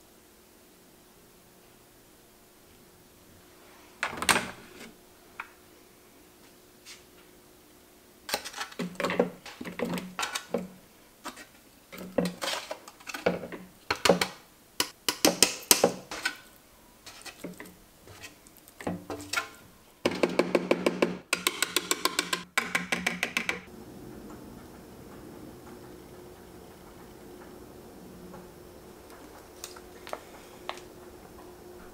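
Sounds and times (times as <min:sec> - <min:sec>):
metal spatula scraping sheet pan: 0:11.3 - 0:13.3, 0:16.1 - 0:18.4.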